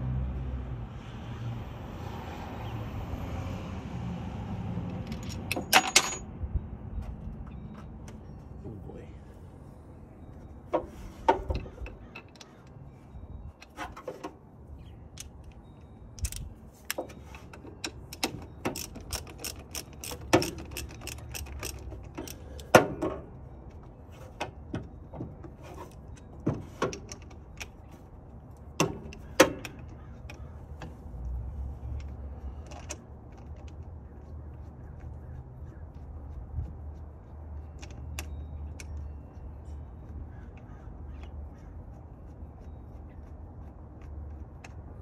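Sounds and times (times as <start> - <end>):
metal tools clinking: 4.9 - 6.3, 15.2 - 27.8
ratchet wrench clicking: 17.8 - 22.7.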